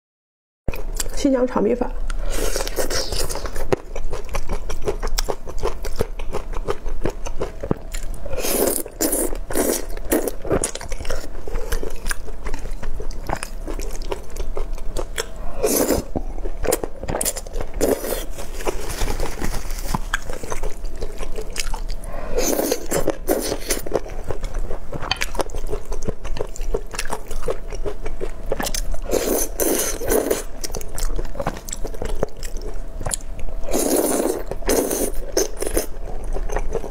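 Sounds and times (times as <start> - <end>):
chewing noodles: 2.1 - 36.9
slurping noodles: 8.3 - 10.6, 15.5 - 16.8, 22.2 - 23.8, 29.1 - 30.5, 33.7 - 35.9.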